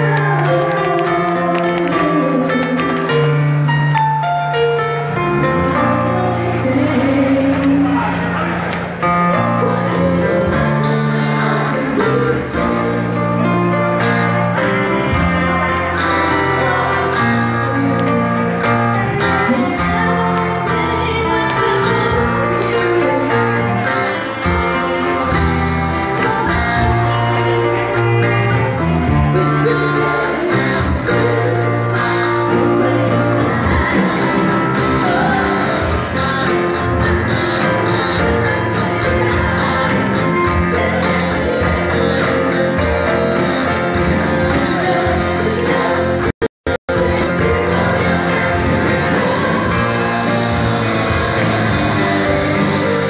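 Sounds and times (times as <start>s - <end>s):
bass guitar: 0.0s - 53.0s
drums: 0.0s - 53.0s
electric guitar: 0.0s - 53.0s
keyboard: 0.0s - 53.0s
women singing: 5.9s - 8.4s, 9.6s - 13.2s, 15.1s - 24.3s, 25.4s - 36.6s, 39.4s - 46.3s, 46.9s - 53.0s.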